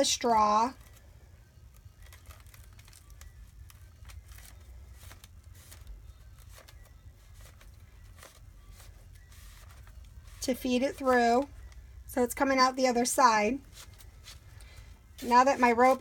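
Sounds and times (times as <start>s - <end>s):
low steady hum: 0.0s - 16.0s
faint rope rustling: 0.4s - 12.6s, 13.5s - 16.0s.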